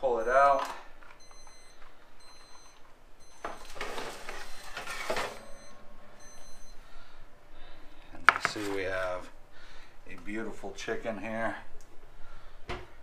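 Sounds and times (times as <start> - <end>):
timer alarm beeping: 1.2 - 3.8, 4.4 - 7.1
baking sheet scraping over oven rack: 3.6 - 5.6, 8.4 - 9.2.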